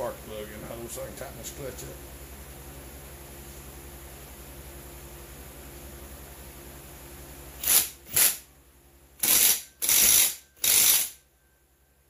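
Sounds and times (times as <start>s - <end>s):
ratchet wrench clicking: 7.6s - 8.4s, 9.2s - 11.2s.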